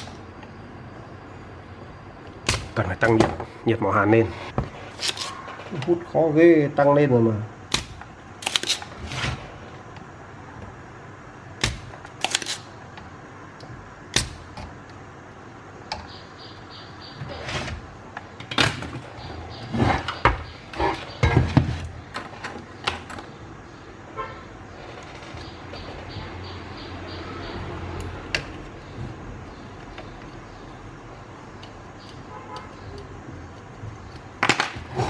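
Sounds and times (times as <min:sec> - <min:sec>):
desoldering pump snapping clicks: 0:31.6 - 0:34.3.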